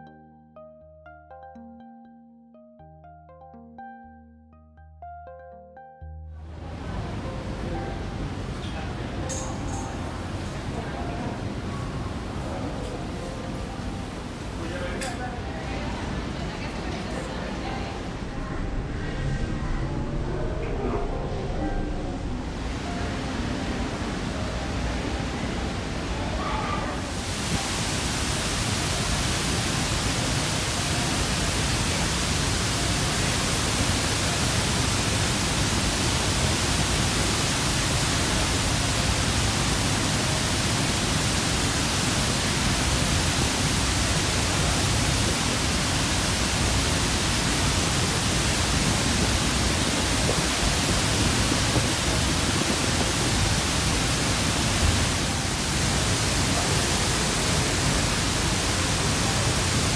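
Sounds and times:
waterfall rushing: 6.4 - 16.6, 22.2 - 59.9.

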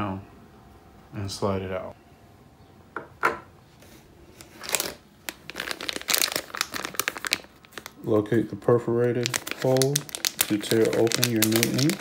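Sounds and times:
plastic packaging crinkling: 4.3 - 8.1, 9.0 - 12.0.

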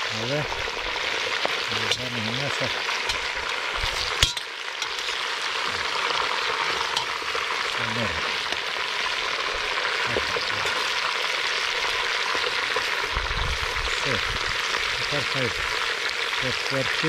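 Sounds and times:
meat sizzling in hot fat: 0.0 - 17.0
metal spoon stirring: 3.0 - 5.2.

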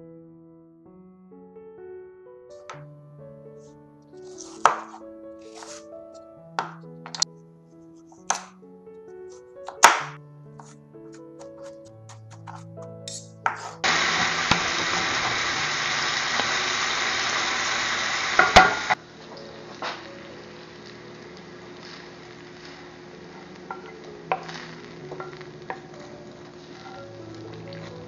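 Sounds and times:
wooden spatula scraping: 4.2 - 6.2, 10.6 - 14.6, 21.7 - 28.0
sausage sizzling in a skillet: 13.1 - 28.0
pan clatter: 18.4 - 19.0.

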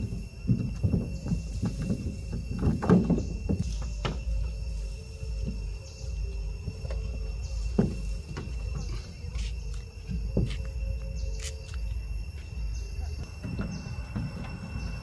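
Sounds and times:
monkeys thumping on metal car roof: 0.0 - 4.6, 6.8 - 9.3.

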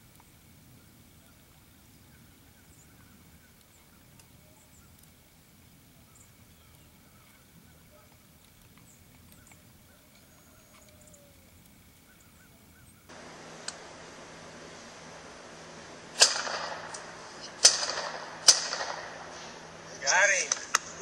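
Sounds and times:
faint high bird chirps: 0.2 - 5.1, 5.9 - 13.1.

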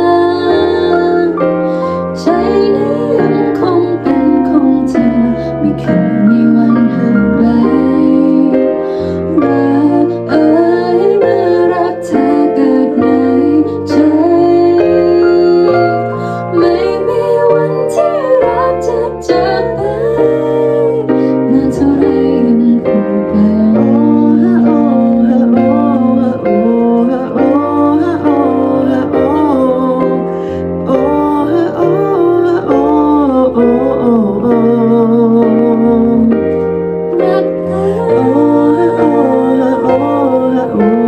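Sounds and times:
woman and man singing: 37.2 - 41.0.

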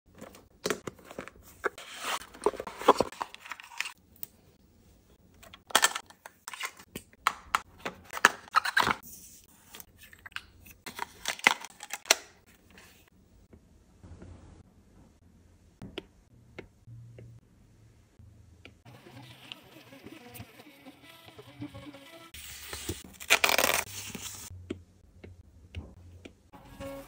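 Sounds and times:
cardboard and paper rustling: 0.1 - 4.0.

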